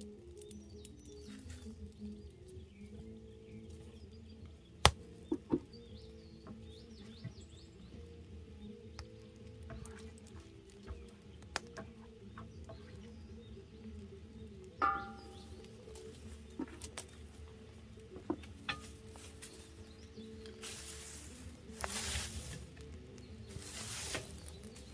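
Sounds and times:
wood fire crackling and popping: 0.0 - 24.9
metal lid clanking: 14.8 - 15.5.

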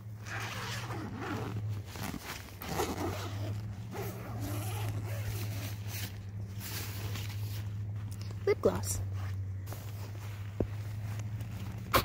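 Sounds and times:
tent zipper being pulled: 0.0 - 7.8.

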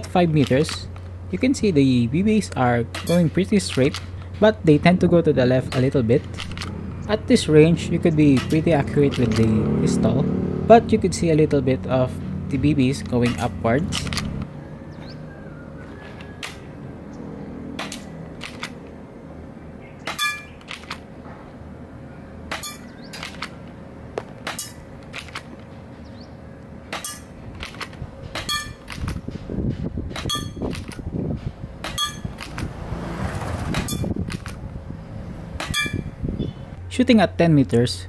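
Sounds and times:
low rushing noise: 0.9 - 19.8
airsoft pistol shots snapping: 17.8 - 18.8.

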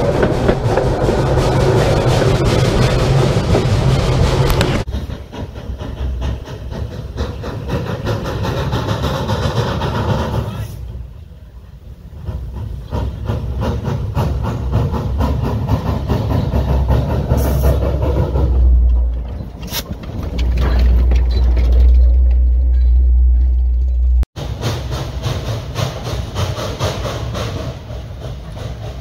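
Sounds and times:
steam hissing: 0.0 - 18.6, 24.4 - 29.0
heavy low rumble: 0.0 - 24.3
steam locomotive chuffing: 0.0 - 29.0.

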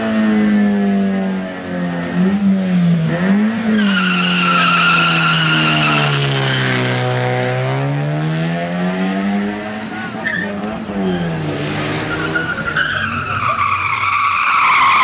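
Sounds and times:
car engine revving: 0.0 - 15.0
tyres squealing: 3.7 - 6.8, 10.1 - 15.0.

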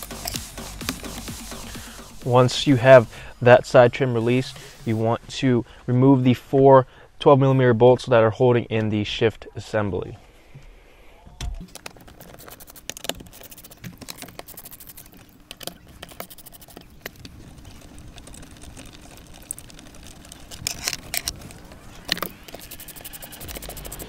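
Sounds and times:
socket ratchet clicking: 20.5 - 24.0.

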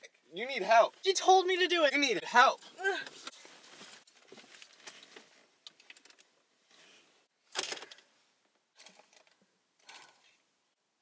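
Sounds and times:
clothing rustling against seats: 3.1 - 5.6.

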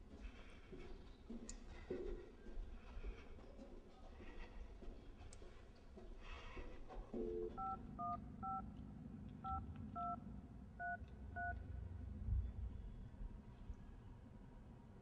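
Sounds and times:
telephone dial tone: 7.2 - 8.6
touch-tone key beeps: 7.3 - 8.6, 9.5 - 10.2, 10.8 - 11.6.

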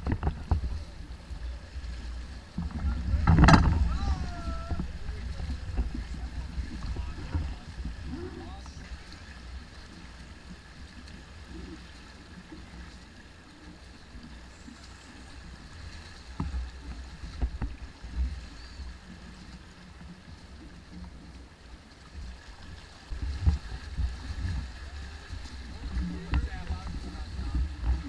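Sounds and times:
water rushing along hull: 0.0 - 28.0
wind gusting on microphone: 2.6 - 8.6.

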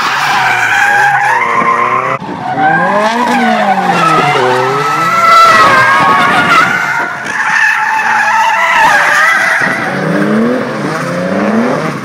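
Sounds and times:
tyres squealing on tarmac: 0.0 - 9.9
car engine revving hard: 9.8 - 12.0.

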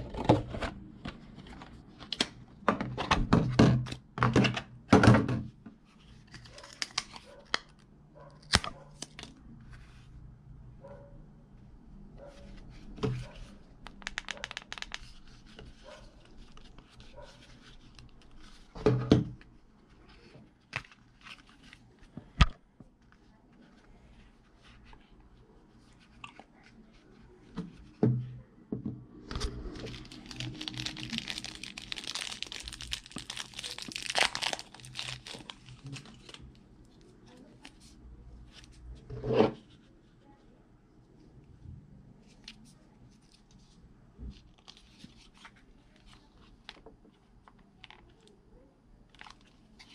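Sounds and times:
plastic packaging crinkling: 29.5 - 36.6, 49.1 - 49.9.

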